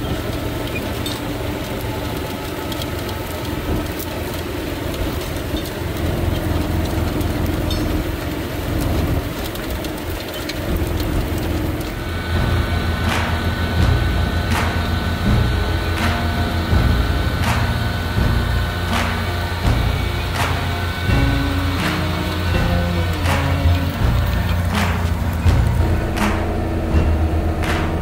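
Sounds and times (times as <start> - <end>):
planter units clattering over soil: 0.0 - 28.0
tractor engine running: 0.0 - 28.0.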